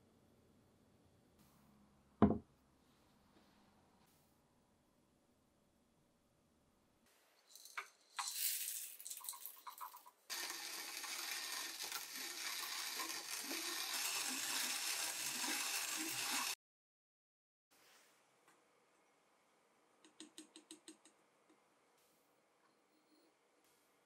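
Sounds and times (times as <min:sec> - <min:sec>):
hand grinder grinding coffee beans: 0:07.5 - 0:16.6
grinder clicks and rattles: 0:07.6 - 0:16.6.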